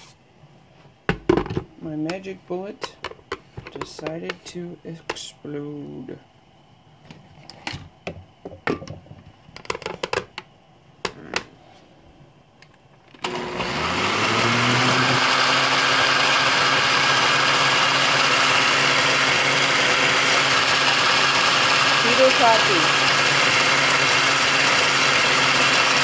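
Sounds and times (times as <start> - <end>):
person talking: 1.8 - 3.0, 3.6 - 6.2, 11.1 - 11.5, 21.9 - 23.2
blender motor running: 13.2 - 26.0.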